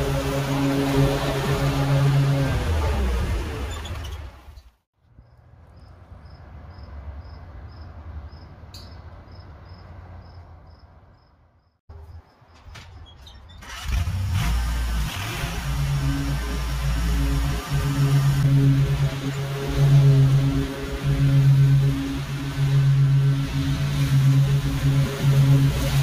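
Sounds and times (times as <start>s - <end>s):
engine running muffled: 0.0s - 5.2s, 13.6s - 26.0s.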